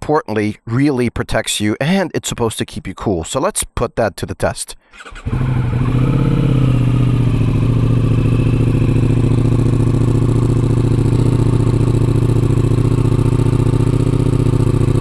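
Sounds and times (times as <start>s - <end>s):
motorcycle engine starting and idling: 4.9s - 15.0s.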